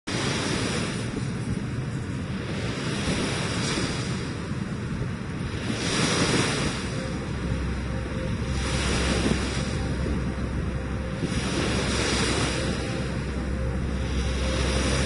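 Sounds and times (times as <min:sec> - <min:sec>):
sea waves washing on beach: 0:00.1 - 0:15.0
wind on microphone: 0:00.1 - 0:15.0.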